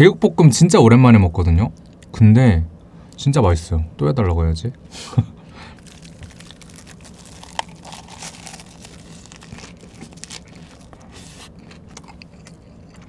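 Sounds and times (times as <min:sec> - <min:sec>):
crunching lettuce leaves: 0:05.6 - 0:13.0.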